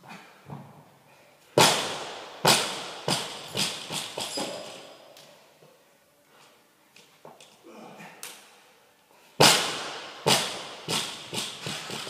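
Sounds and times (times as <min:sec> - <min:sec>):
barbell crashing on rubber floor: 0:01.6 - 0:04.8, 0:09.4 - 0:12.0.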